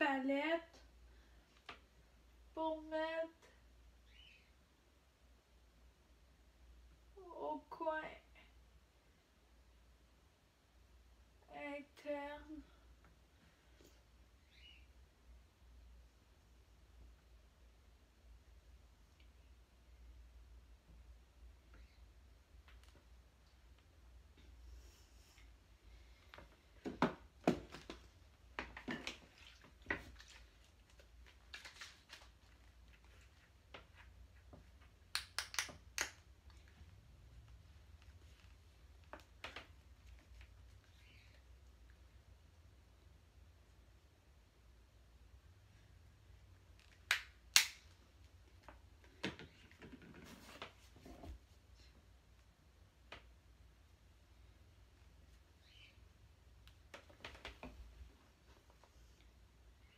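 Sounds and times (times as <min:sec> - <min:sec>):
rustling: 0:27.6 - 0:35.0.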